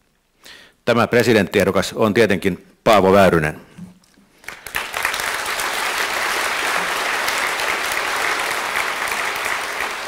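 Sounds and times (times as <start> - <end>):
audience applauding: 4.4 - 10.0.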